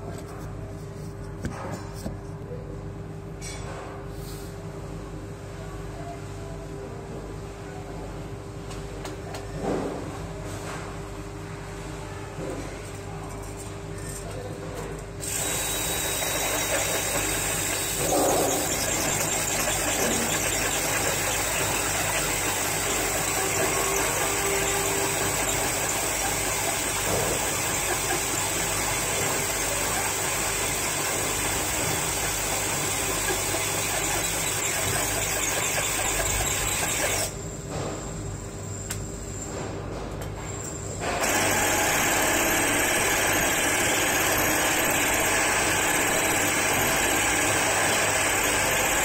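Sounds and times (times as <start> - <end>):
drill grinding into tile: 15.2 - 37.3, 41.2 - 49.0.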